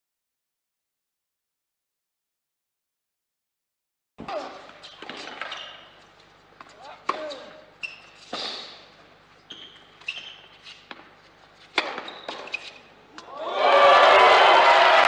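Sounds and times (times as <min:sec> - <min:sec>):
shoe squeaks: 0:04.2 - 0:13.1
racket hitting tennis ball: 0:06.6 - 0:07.6, 0:10.0 - 0:13.3
crowd applauding and cheering: 0:13.3 - 0:15.0.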